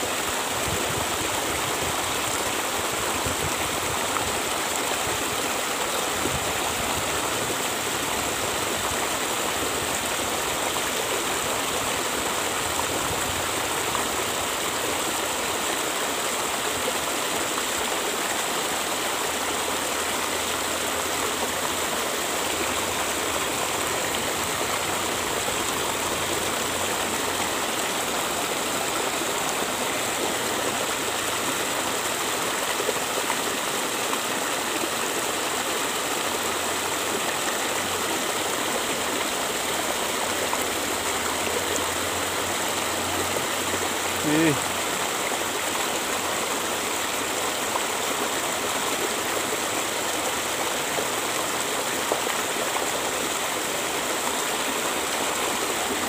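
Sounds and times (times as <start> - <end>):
river rushing over rocks: 0.0 - 56.0.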